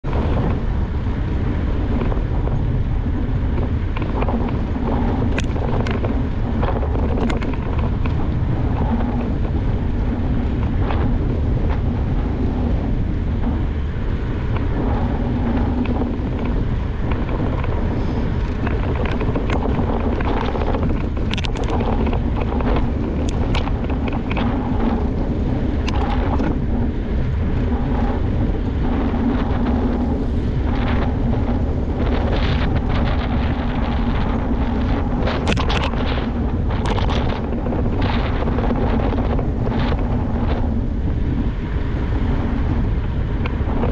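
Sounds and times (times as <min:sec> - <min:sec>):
low rumble: 0:00.0 - 0:43.9
wind rushing over microphone: 0:00.0 - 0:43.9
sharp clicks and rattles: 0:03.5 - 0:12.0, 0:14.5 - 0:40.8.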